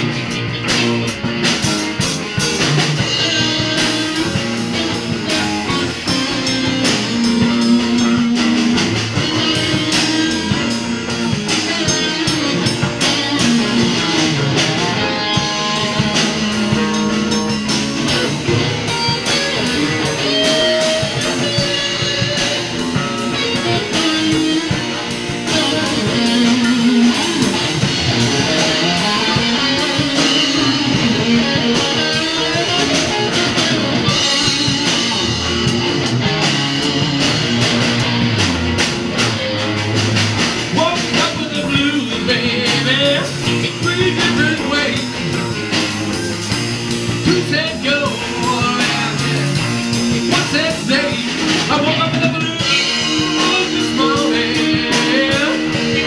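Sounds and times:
drum kit: 0.0 - 56.0
electric guitars: 0.0 - 56.0
person singing: 40.7 - 45.2, 47.2 - 49.6, 50.2 - 56.0.

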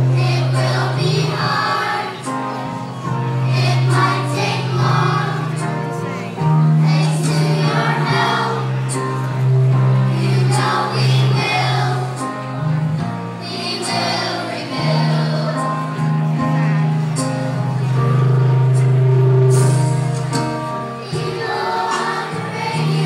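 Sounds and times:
children's choir singing: 0.0 - 16.3, 20.4 - 23.0
sustained low bass notes: 16.1 - 20.3.

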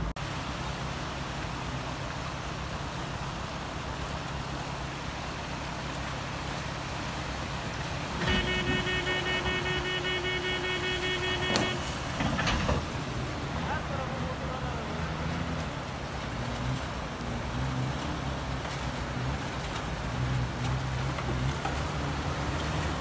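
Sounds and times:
rushing stream water: 0.0 - 23.0
vehicle engine: 0.0 - 23.0
long car horn blast: 8.2 - 12.4.

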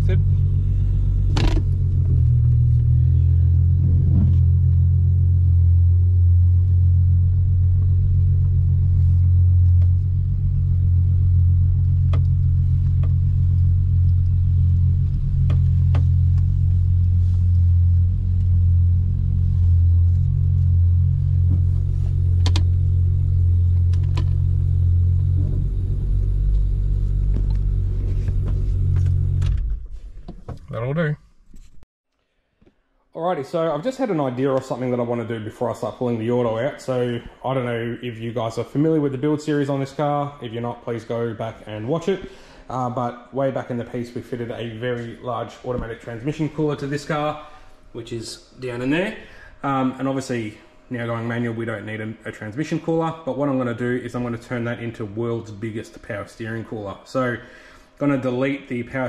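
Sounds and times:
car engine running: 0.0 - 31.0.

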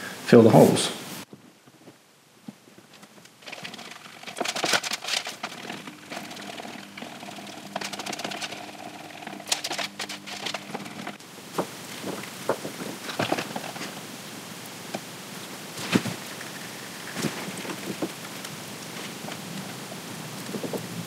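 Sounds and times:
dispensing pumps clicking: 3.0 - 11.2, 15.8 - 19.2
plastic cup being handled: 3.0 - 11.2
steady low hum: 3.4 - 14.7.

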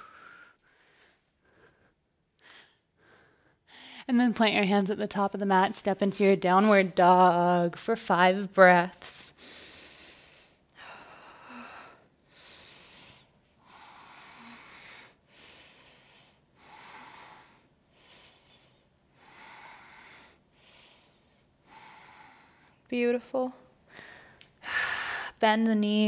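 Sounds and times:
woman breathing deeply: 0.0 - 4.1, 9.4 - 22.8, 23.9 - 25.4.

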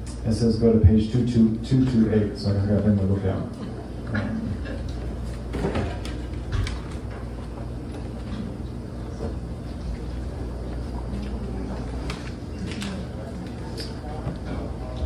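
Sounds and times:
low room hum and rumble: 0.0 - 15.0.

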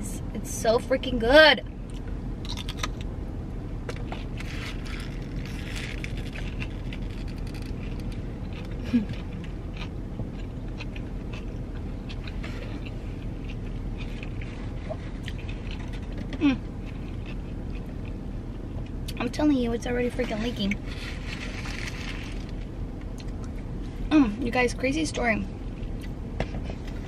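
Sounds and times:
low hum inside a car: 0.0 - 27.0
person chewing food: 1.9 - 3.1, 3.9 - 19.2.

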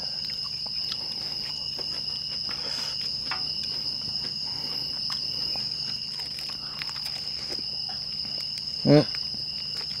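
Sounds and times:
night insects chirring: 0.0 - 10.0.

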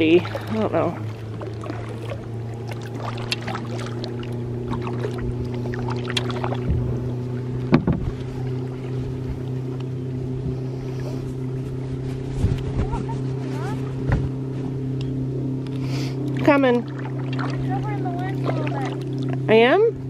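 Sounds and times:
paddle splashes and drips: 0.0 - 12.1, 15.7 - 19.5
motorboat engine droning: 0.0 - 20.0.

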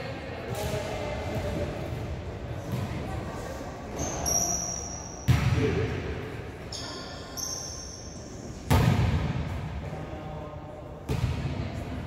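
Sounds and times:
sneakers squeaking on court: 3.9 - 5.5, 6.7 - 8.7
loud ball thump echoing: 5.2 - 6.1, 8.7 - 9.5, 11.1 - 11.6.

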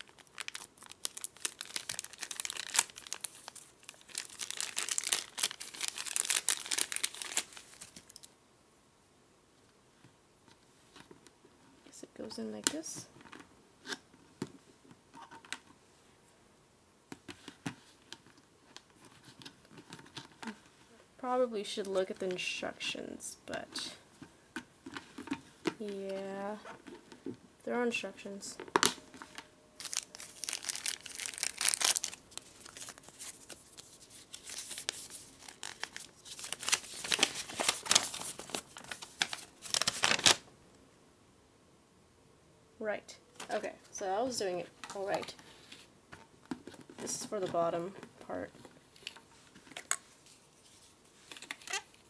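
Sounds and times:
paper rustling and crinkling: 0.0 - 8.1, 28.8 - 40.5.

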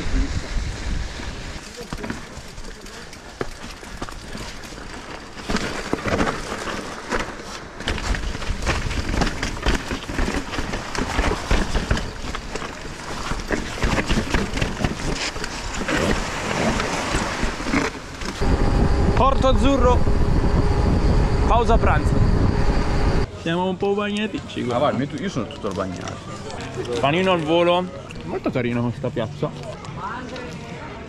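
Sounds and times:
mountain bike rattling on trail: 1.2 - 19.3
wind buffeting microphone: 18.4 - 23.3.

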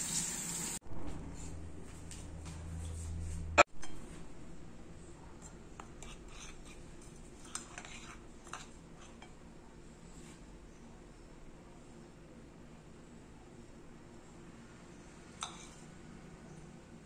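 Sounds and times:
spoon scraping a glass bowl: 5.4 - 9.3, 15.3 - 16.0.

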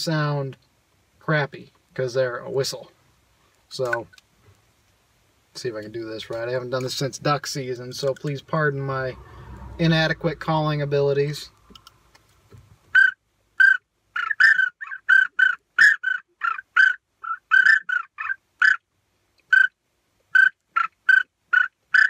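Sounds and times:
duck whistle chirping notes: 12.9 - 18.8, 19.5 - 19.7, 20.3 - 22.0.

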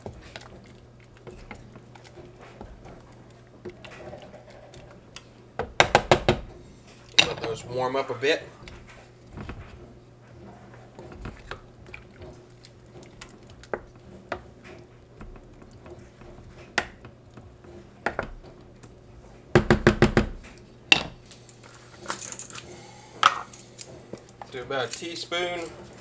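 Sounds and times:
wooden spoon stirring in saucepan: 0.0 - 19.6
steady low hum: 0.0 - 26.0.

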